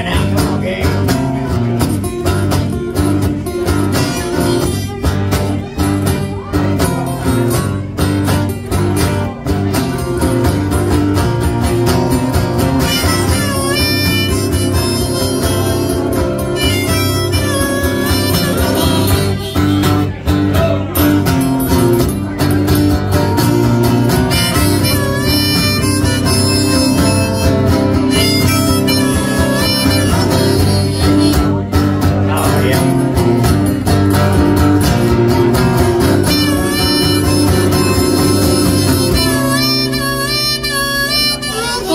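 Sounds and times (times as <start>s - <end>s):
strummed acoustic guitar: 0.0s - 41.9s
harmonica with bending notes: 11.7s - 20.2s, 23.4s - 32.0s, 35.5s - 41.9s.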